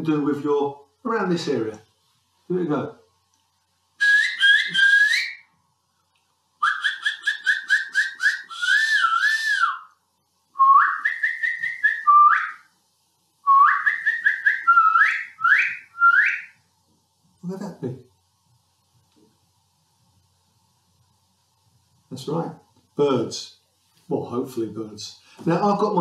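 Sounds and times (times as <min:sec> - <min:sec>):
man whistling birdsong: 0:04.0 - 0:05.5, 0:06.6 - 0:10.0, 0:10.6 - 0:12.7, 0:13.5 - 0:16.6.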